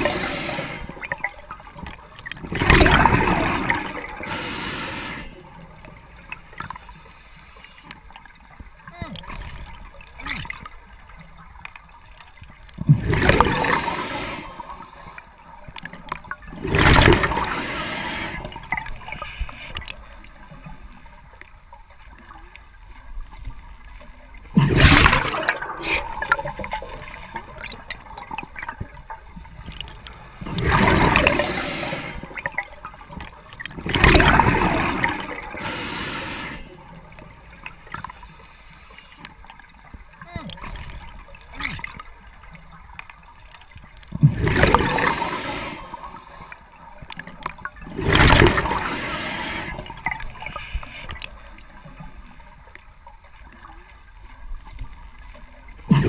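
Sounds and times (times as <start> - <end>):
underwater background: 0.0 - 56.0
diver exhaling bubbles: 12.9 - 14.8, 24.6 - 28.8, 30.3 - 32.6, 33.8 - 36.6, 44.2 - 46.2, 47.9 - 50.7.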